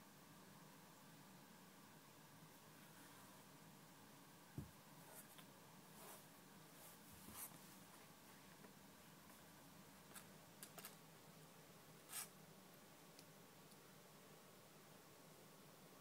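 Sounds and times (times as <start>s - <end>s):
kittens rustling on a blanket: 5.0s - 8.6s.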